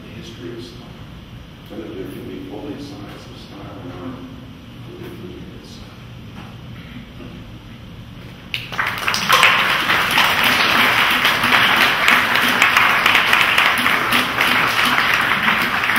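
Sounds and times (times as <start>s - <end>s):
audience applause: 8.5s - 15.9s.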